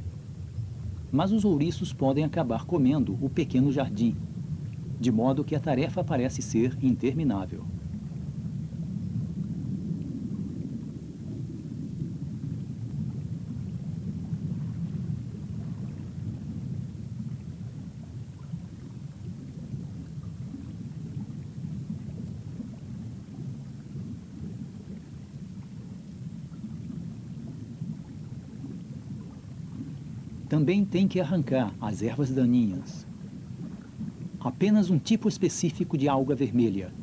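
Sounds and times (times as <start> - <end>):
underwater rumbling: 0.0 - 37.0.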